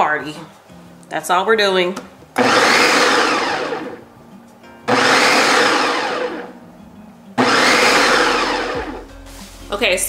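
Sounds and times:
food processor motor whirring: 2.4 - 4.0, 4.9 - 6.5, 7.4 - 9.0.

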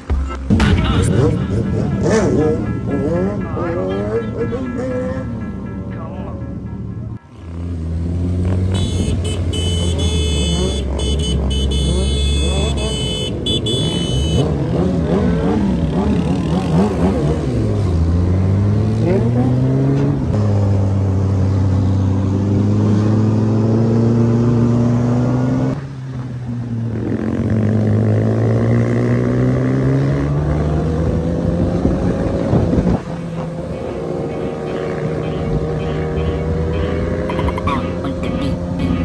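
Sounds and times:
motorcycle engines revving: 0.0 - 39.0
motorcycle engine steady note: 0.1 - 8.0.

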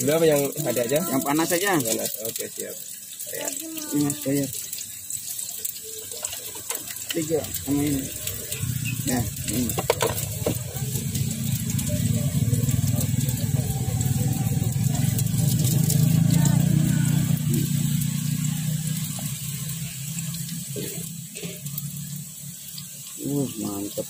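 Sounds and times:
motorcycle engine rumble: 6.4 - 23.5.

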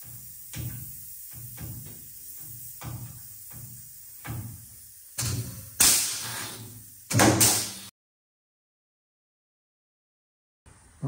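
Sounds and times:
air riveter hissing blast: 0.0 - 7.9.

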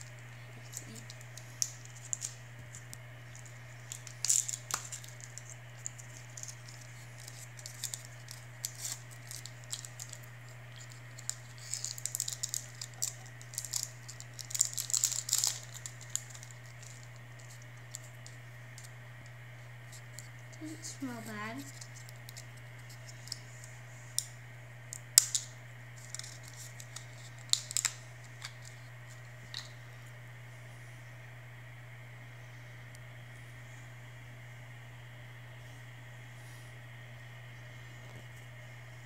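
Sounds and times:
paper wrapper crinkling and tearing: 0.0 - 18.9, 19.8 - 23.5, 24.9 - 29.8
steady low hum: 0.0 - 39.0.

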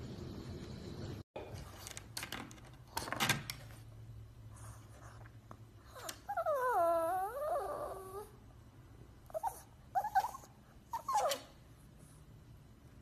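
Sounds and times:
puppy whimpers: 5.8 - 8.4, 9.3 - 11.6
puppy whining: 5.8 - 8.5, 9.2 - 11.6.

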